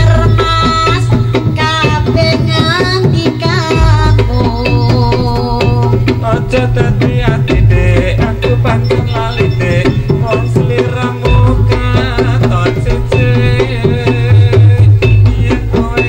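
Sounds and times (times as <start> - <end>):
hand drum beat: 0.0 - 16.0
melodic instruments playing: 3.6 - 16.0.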